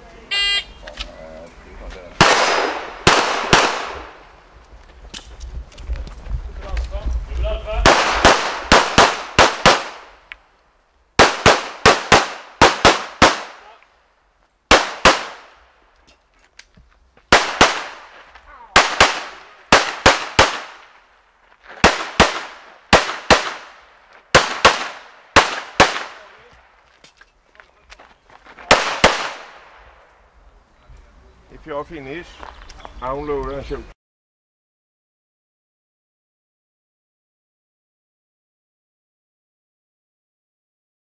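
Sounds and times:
pistol shots with echo: 0:02.2 - 0:04.2, 0:07.8 - 0:10.2, 0:11.2 - 0:13.8, 0:14.7 - 0:15.6, 0:17.3 - 0:20.9, 0:21.8 - 0:26.4, 0:28.7 - 0:29.7.

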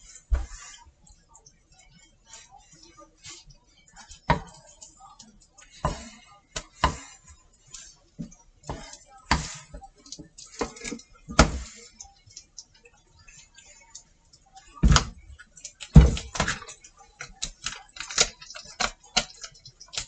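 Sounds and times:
wooden spatula in frying pan: 0:00.0 - 0:20.0.

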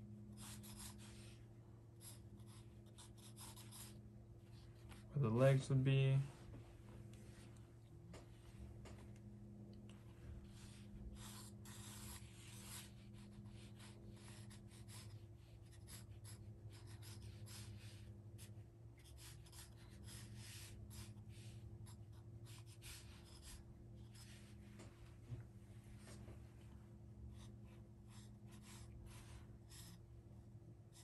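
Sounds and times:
low steady hum: 0:00.0 - 0:31.0
pencil sketching on paper: 0:00.3 - 0:01.4, 0:02.0 - 0:04.0, 0:10.5 - 0:24.6, 0:27.3 - 0:30.0.

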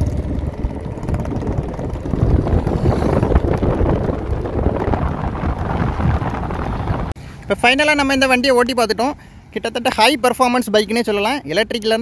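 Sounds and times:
wind buffeting microphone: 0:00.0 - 0:07.2
rushing air and road noise: 0:00.0 - 0:10.4.

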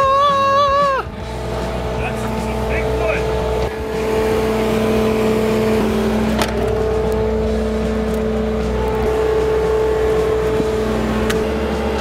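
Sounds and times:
diesel engine running steadily: 0:00.0 - 0:12.0.

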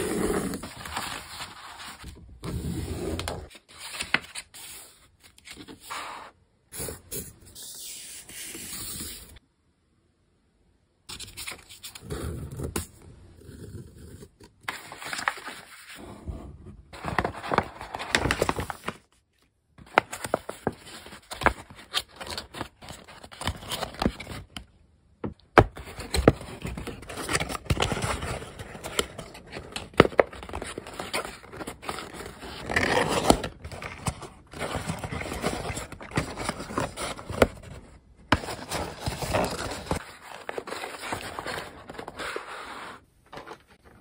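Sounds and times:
paper crinkling and creasing: 0:00.0 - 0:06.2, 0:12.8 - 0:16.1, 0:16.9 - 0:19.2, 0:19.8 - 0:24.6, 0:25.6 - 0:44.0.

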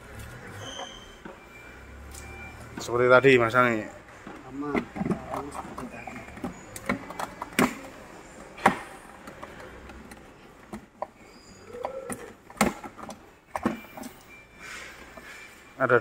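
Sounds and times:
handling noise: 0:03.6 - 0:15.7
plastic panels clicking: 0:04.3 - 0:14.1.

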